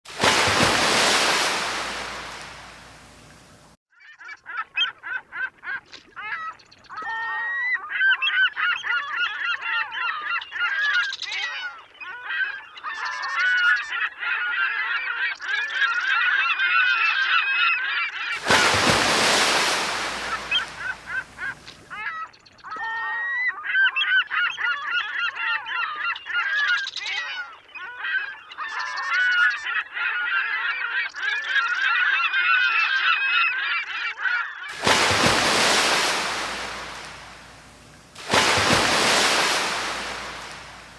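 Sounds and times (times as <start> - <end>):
loud rushing noise: 0.1 - 3.3, 34.8 - 40.9.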